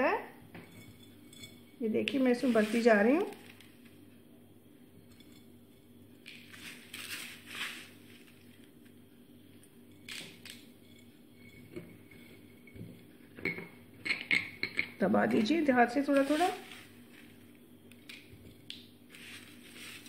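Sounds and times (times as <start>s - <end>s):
faint steady hum: 0.0s - 20.0s
hands scraping and rustling food: 2.1s - 4.0s, 6.2s - 9.0s, 16.0s - 20.0s.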